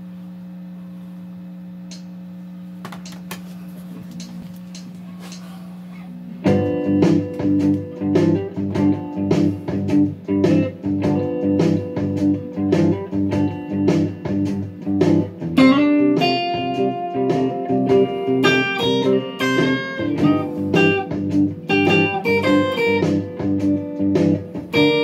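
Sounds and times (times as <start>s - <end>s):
electric guitar blues chords: 6.2s - 25.0s.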